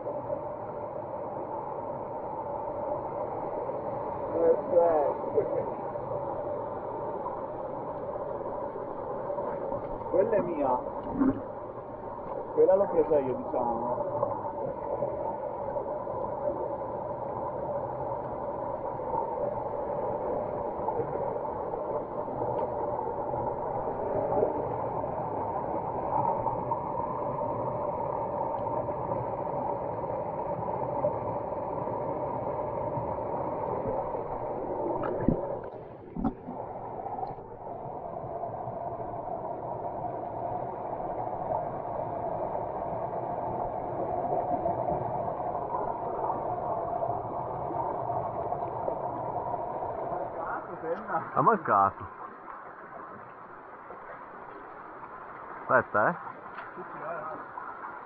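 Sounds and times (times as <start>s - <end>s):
stream running over rocks: 30.7s - 58.0s.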